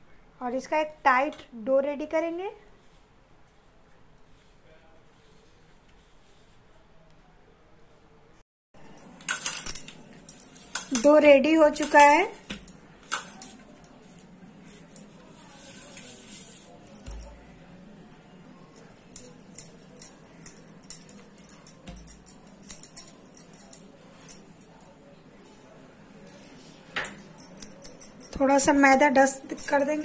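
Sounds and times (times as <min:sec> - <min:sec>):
bangles jingling: 0:18.8 - 0:25.0, 0:26.3 - 0:30.0.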